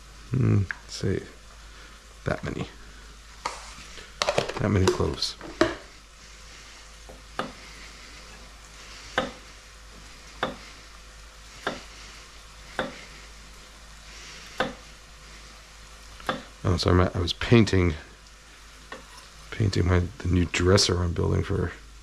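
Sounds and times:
vegetables sizzling in pan: 0.0 - 19.6
knife knocking on cutting board: 4.2 - 5.8.

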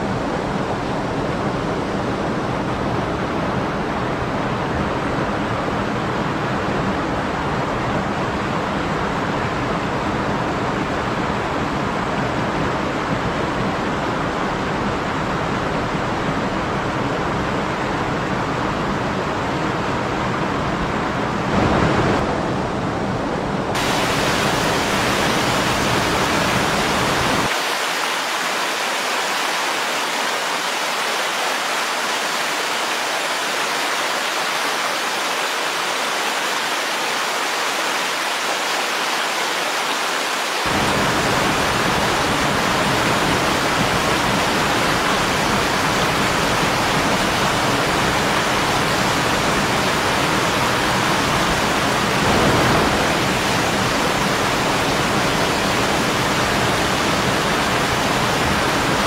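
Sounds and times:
stream water rushing over rocks: 23.7 - 59.0.

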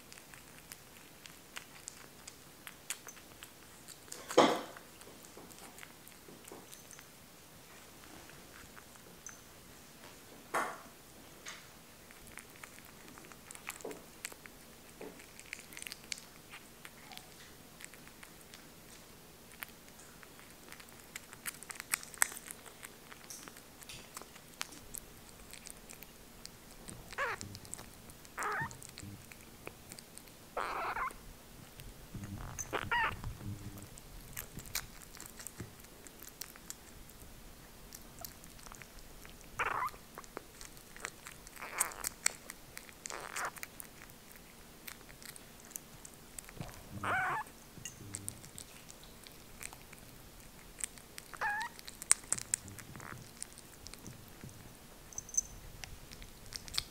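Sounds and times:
kitten lapping and chewing: 0.0 - 56.9
kitten vocal sounds: 26.6 - 29.8, 30.6 - 31.2, 32.2 - 37.0, 38.0 - 54.4.

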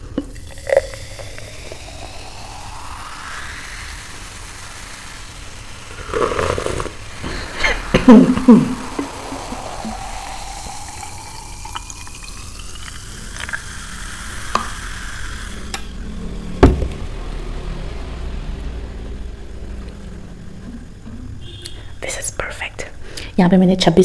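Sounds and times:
carbonation hiss: 0.0 - 23.8
fizzy drink pouring into glass: 0.1 - 15.8.

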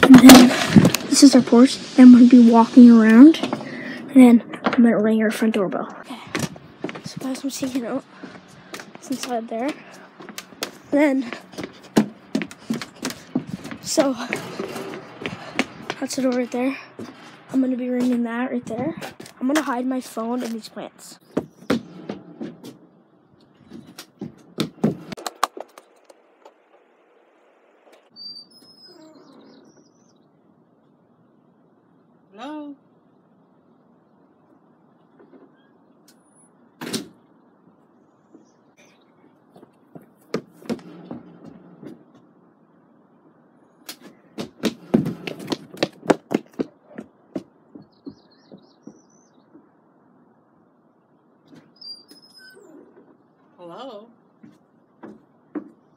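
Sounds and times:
running footsteps on wooden steps: 6.3 - 19.8, 21.3 - 22.8, 23.7 - 25.8, 39.6 - 42.1, 44.4 - 49.7, 54.4 - 55.8
faint bird chirping: 20.8 - 22.0, 27.0 - 39.9, 46.8 - 54.4
rubber boots thudding down wooden steps: 21.3 - 22.8, 23.8 - 25.2, 39.9 - 41.6, 44.4 - 49.6
bird trilling chirp: 28.1 - 30.4, 47.8 - 49.6, 51.7 - 53.0.

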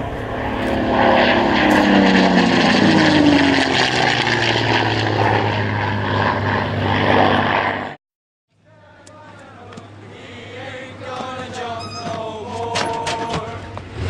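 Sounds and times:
propeller plane flying past: 0.0 - 8.0.

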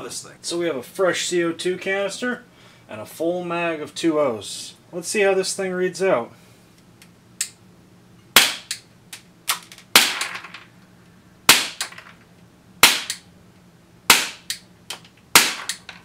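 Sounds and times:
airsoft pistol shots: 8.4 - 8.8, 9.9 - 10.4, 11.5 - 12.0, 12.8 - 13.2, 14.1 - 14.6, 15.3 - 15.8.

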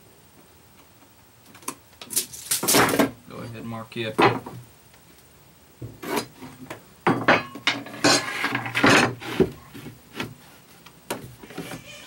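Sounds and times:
board scraping: 5.9 - 6.6, 7.8 - 12.0.

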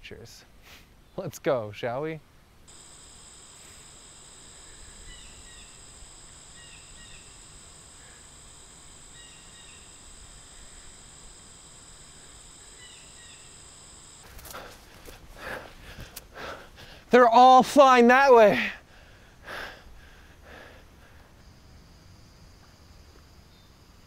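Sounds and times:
insects trilling: 2.7 - 24.0
bird chirps: 4.4 - 11.1, 12.1 - 13.7.

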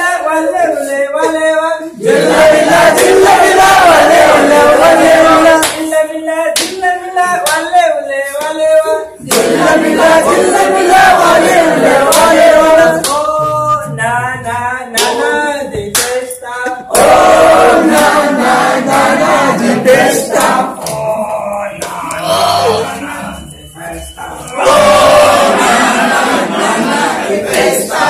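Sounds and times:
group singing in unison: 0.0 - 28.0.

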